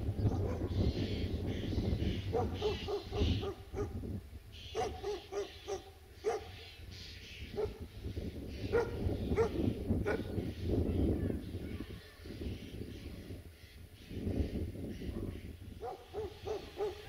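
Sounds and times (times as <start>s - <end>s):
wind rumbling on microphone: 0.0s - 17.0s
dog barking: 0.3s - 0.7s, 2.3s - 4.0s, 4.7s - 6.6s, 7.6s - 7.8s, 8.7s - 10.3s, 15.8s - 17.0s.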